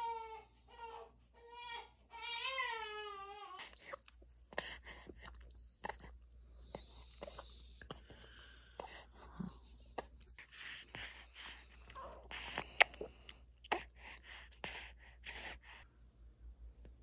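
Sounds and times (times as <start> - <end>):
baby crying: 0.0 - 3.8.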